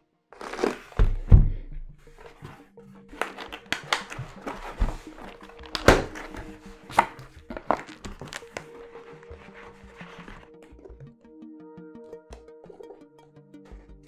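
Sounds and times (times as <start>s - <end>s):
packaging rustling and tearing: 0.4s - 1.0s, 2.2s - 10.8s
package knocks: 3.1s - 8.6s.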